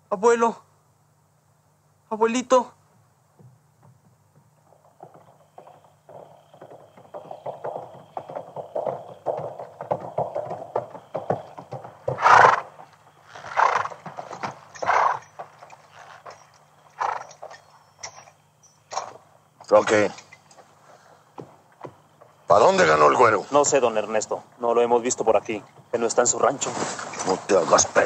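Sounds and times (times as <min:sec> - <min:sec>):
horses hooves clip-clopping: 0:02.9 - 0:28.0
horse whinnying: 0:05.6 - 0:18.3.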